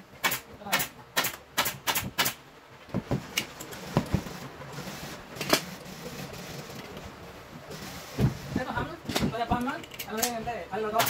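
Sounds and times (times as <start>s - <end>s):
pneumatic staple gun firing: 1.2s - 2.4s.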